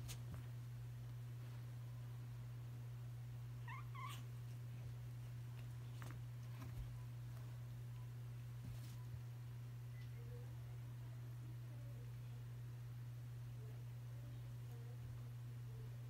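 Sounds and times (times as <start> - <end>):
steady low hum: 0.0 - 16.0
cat cry: 3.6 - 4.3.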